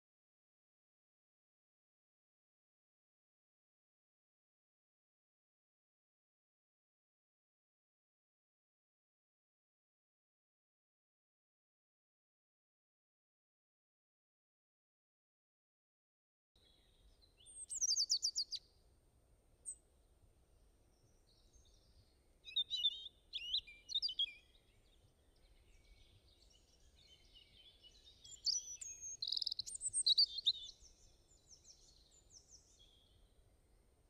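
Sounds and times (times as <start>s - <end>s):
birds chirping and singing: 16.8s - 18.6s, 21.3s - 33.2s.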